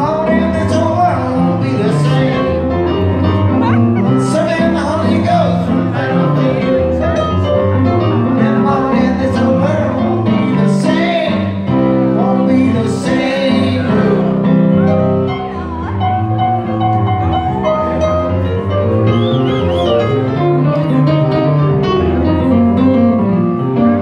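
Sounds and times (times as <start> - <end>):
man singing: 0.0 - 7.2, 8.1 - 14.9
keyboard piano chords and melody: 0.0 - 24.0.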